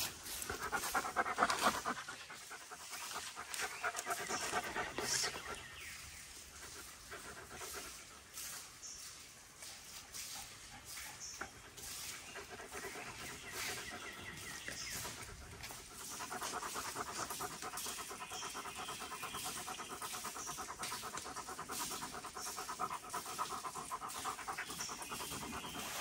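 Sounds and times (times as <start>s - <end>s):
dog panting: 0.0s - 8.6s, 10.4s - 26.0s.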